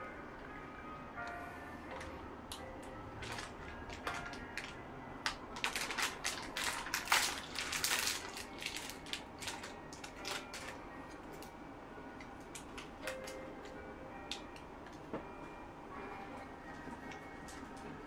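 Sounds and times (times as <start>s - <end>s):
plastic wrapper crinkling: 3.2s - 11.5s.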